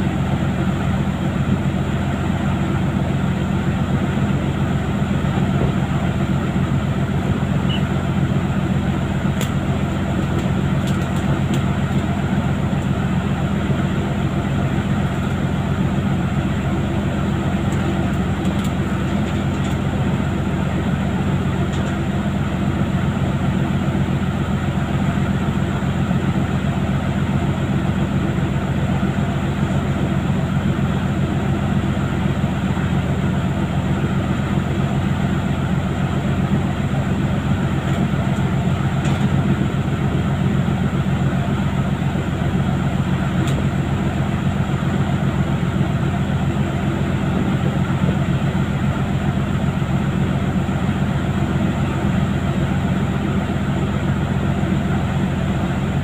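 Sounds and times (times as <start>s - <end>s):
boat engine drone: 0.0s - 56.0s.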